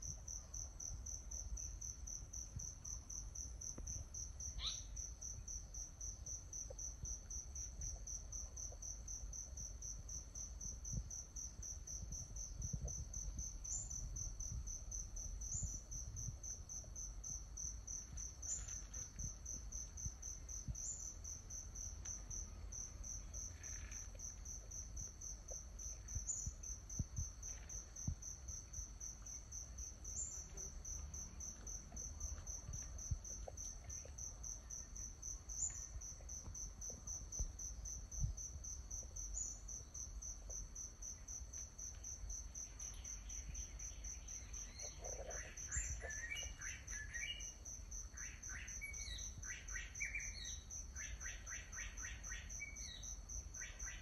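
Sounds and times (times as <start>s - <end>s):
insects chirping: 0.0s - 54.0s
small ticks: 15.6s - 37.5s.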